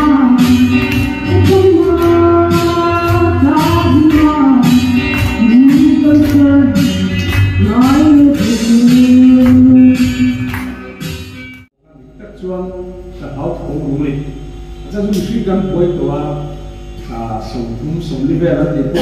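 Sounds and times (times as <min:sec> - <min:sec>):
young woman singing: 0:00.0 - 0:07.0, 0:07.6 - 0:10.1
musical accompaniment with beat: 0:00.0 - 0:11.7.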